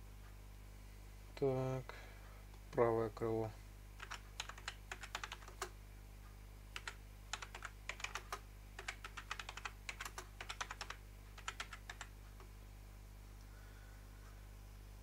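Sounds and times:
typing on computer keyboard: 0:04.0 - 0:05.7, 0:06.8 - 0:12.5.

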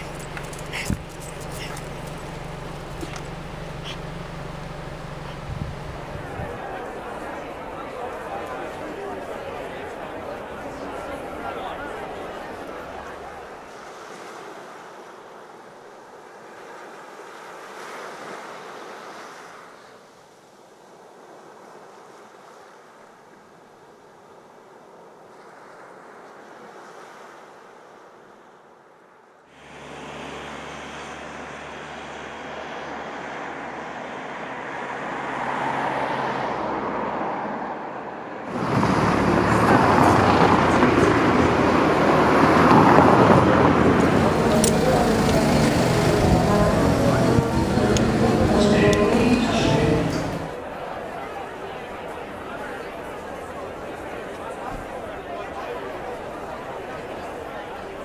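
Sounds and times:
street traffic: 0:00.0 - 0:14.6, 0:29.5 - 0:58.0
surf washing on sandy beach: 0:00.0 - 0:28.8, 0:38.4 - 0:58.0
soft outdoor noise: 0:00.0 - 0:58.0
car driving by: 0:29.6 - 0:50.9.

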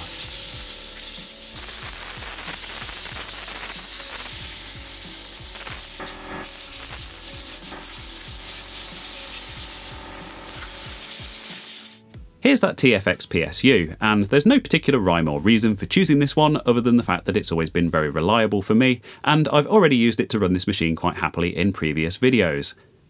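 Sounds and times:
compressed air blow gun hissing: 0:00.0 - 0:12.0.

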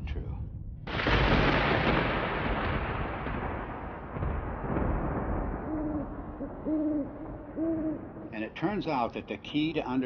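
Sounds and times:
rumbling boom: 0:00.0 - 0:09.4
owl hooting: 0:05.6 - 0:08.2.

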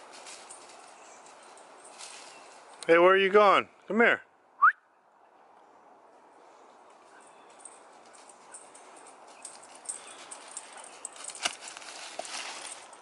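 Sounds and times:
dog running through dry leaves: 0:09.3 - 0:13.0.

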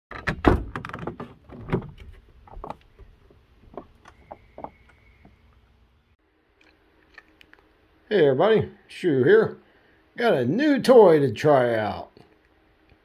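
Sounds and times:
van door latch clunks: 0:00.1 - 0:02.0.

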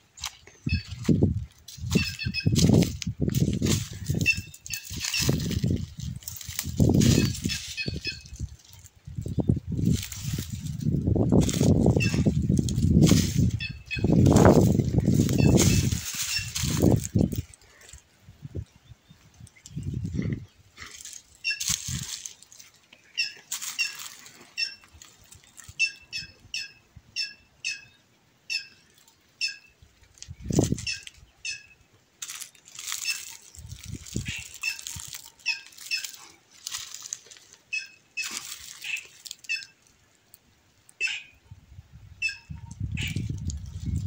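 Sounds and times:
jay calling: 0:01.8 - 0:02.9, 0:03.5 - 0:08.7, 0:11.6 - 0:17.1, 0:32.9 - 0:36.5, 0:37.6 - 0:39.8, 0:41.0 - 0:41.4.

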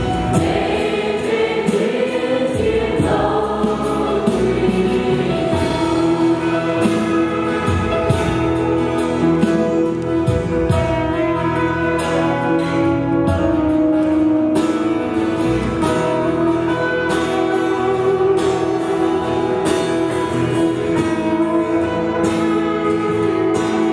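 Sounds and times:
drum and cymbal hits: 0:00.0 - 0:08.8
church band playing gospel: 0:00.0 - 0:23.9
sustained keyboard chords: 0:00.0 - 0:23.9.

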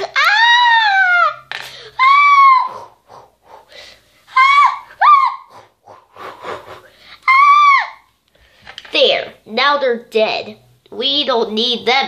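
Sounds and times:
child squealing: 0:00.0 - 0:02.9, 0:04.3 - 0:05.6, 0:07.2 - 0:08.1.

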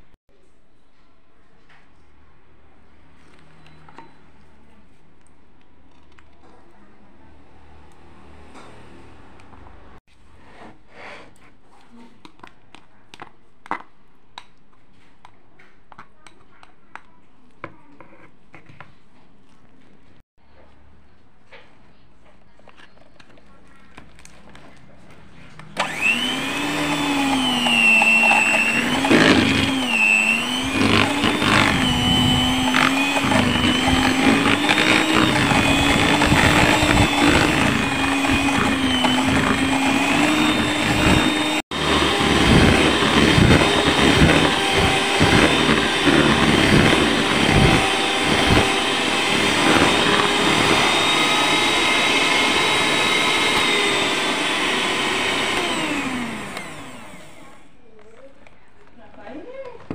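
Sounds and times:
electric hand mixer whining: 0:25.8 - 0:57.7.

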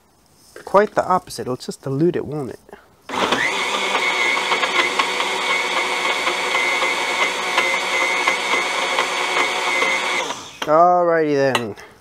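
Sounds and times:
blender motor whining: 0:03.1 - 0:10.7.

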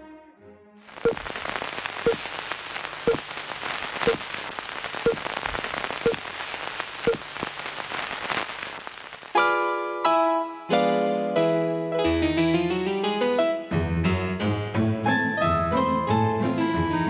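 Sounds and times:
film crackle and hiss: 0:00.9 - 0:09.6.

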